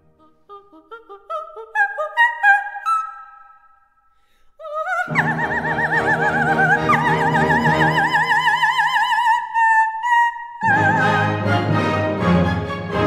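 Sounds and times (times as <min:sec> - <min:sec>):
soprano singing opera: 0:00.0 - 0:03.5, 0:04.6 - 0:12.3
orchestra playing: 0:10.6 - 0:13.0.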